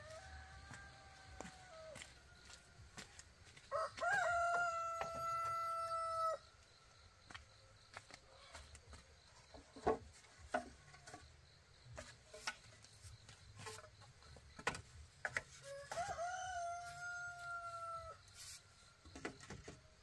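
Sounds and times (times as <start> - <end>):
rooster crowing: 0.0 - 3.1, 3.7 - 6.5, 15.6 - 18.3.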